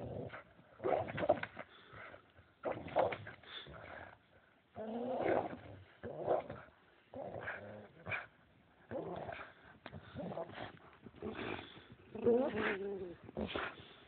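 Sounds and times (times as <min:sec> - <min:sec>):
dogs growling in play: 0:00.0 - 0:14.0.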